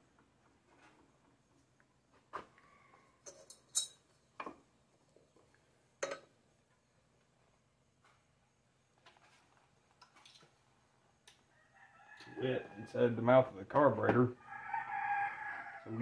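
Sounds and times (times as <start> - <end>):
light metallic clicks and clinks: 3.2 - 4.6, 6.0 - 6.4.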